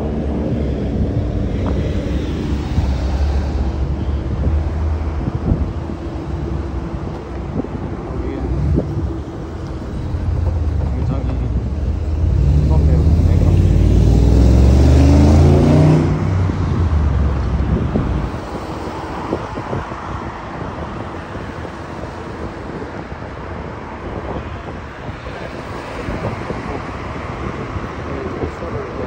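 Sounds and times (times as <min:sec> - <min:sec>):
low rumble: 0:00.0 - 0:18.5
street traffic: 0:00.0 - 0:29.0
wind on microphone: 0:00.0 - 0:29.0.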